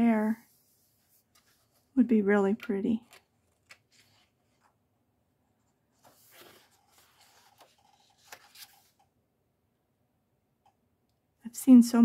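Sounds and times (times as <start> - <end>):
paper rustling: 0.5 - 4.8, 5.6 - 9.1.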